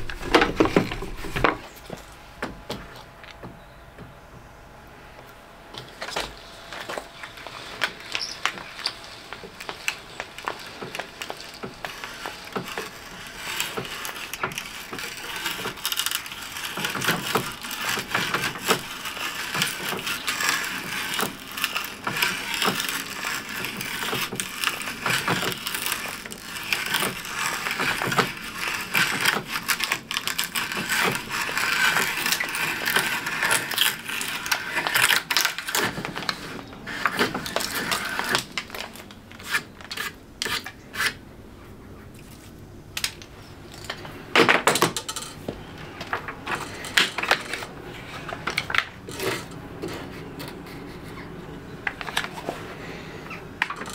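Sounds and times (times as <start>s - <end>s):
hand brace boring into plywood: 6.7s - 41.2s.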